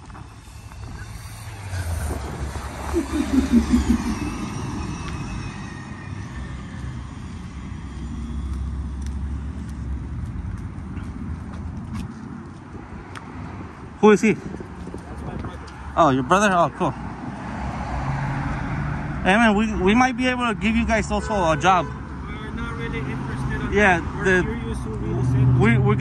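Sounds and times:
vehicle engine running: 0.0 - 9.8.

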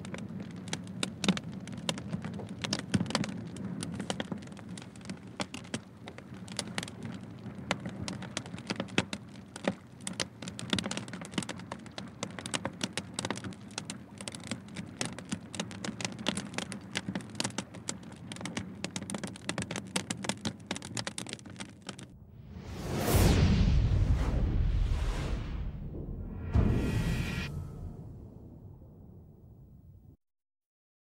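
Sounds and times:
fire crackling and popping: 0.0 - 26.5
steady low rumble: 22.1 - 30.2.

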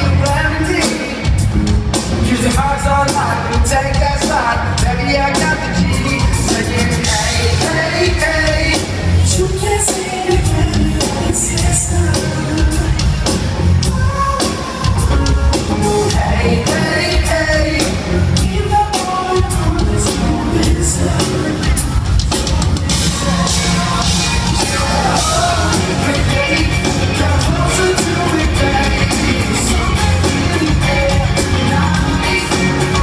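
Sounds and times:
drums: 0.0 - 33.0
live band performing: 0.0 - 33.0
person singing: 0.0 - 33.0.

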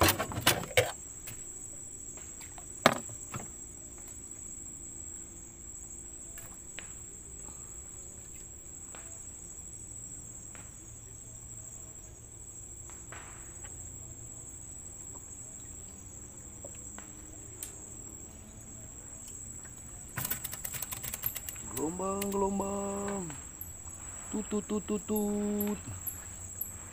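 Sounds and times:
crickets chirping: 0.0 - 26.9
faint clicks: 20.2 - 23.4.

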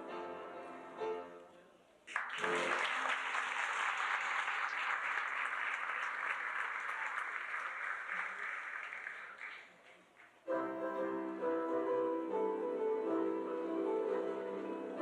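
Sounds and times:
audience applause: 2.1 - 10.4
children's choir singing: 10.5 - 15.0.

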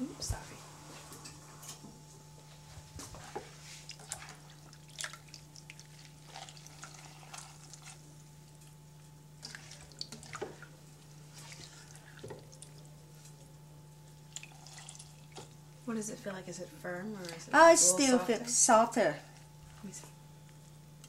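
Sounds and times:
water dripping and splashing: 3.8 - 8.8, 9.4 - 10.7, 11.4 - 12.9, 14.2 - 15.6.

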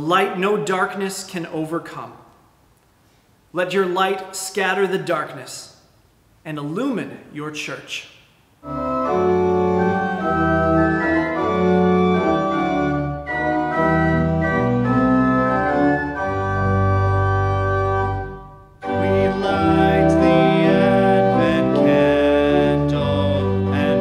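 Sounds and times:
organ playing held chords: 8.6 - 24.0
people singing a hymn: 18.9 - 24.0.

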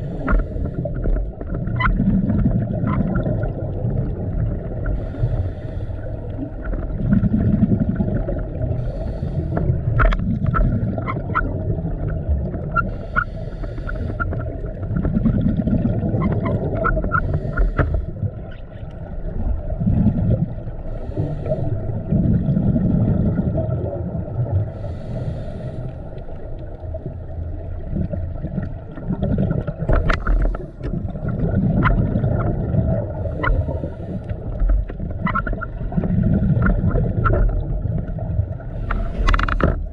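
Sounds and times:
diver regulator breathing: 0.0 - 1.4, 4.8 - 6.6, 8.6 - 10.9, 12.8 - 14.8, 16.3 - 18.4, 20.8 - 22.2, 24.6 - 26.7, 29.9 - 31.2, 33.0 - 34.9, 38.6 - 39.9
exhaled bubbles rumbling underwater: 0.0 - 39.9.

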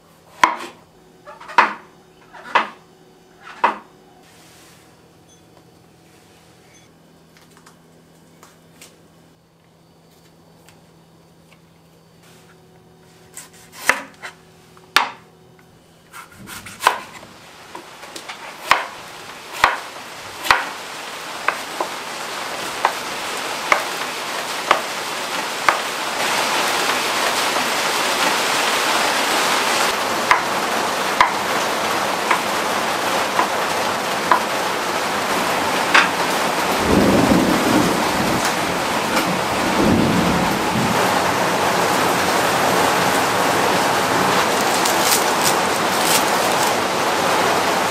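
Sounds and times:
knife chopping on wooden board: 0.4 - 2.8, 3.4 - 3.9, 13.3 - 14.4, 15.0 - 15.2, 16.1 - 19.8, 20.4 - 20.8, 23.7 - 23.9, 24.7 - 24.9.

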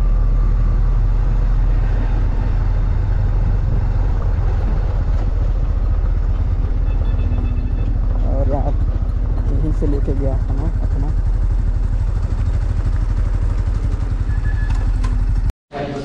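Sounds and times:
wind rumble on microphone: 0.0 - 10.9
tyres on gravel road: 1.0 - 15.5
motorcycle engine running: 1.7 - 15.5.

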